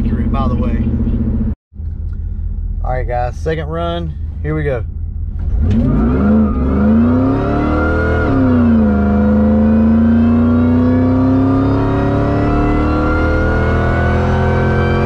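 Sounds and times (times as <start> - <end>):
truck engine at full throttle: 0.0 - 1.6, 5.5 - 15.0.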